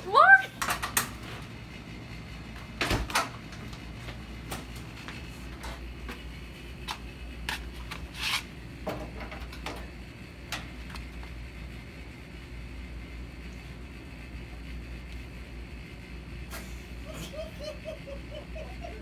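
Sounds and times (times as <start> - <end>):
steady low hum: 0.0 - 19.0
footsteps clicks and rustles: 3.5 - 8.5.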